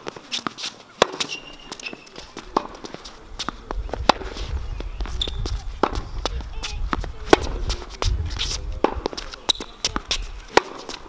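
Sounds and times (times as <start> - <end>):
quick footsteps and shoe scuffs: 0.0 - 11.0
tennis ball hit by rackets: 0.0 - 11.0
low rumble: 3.8 - 9.1.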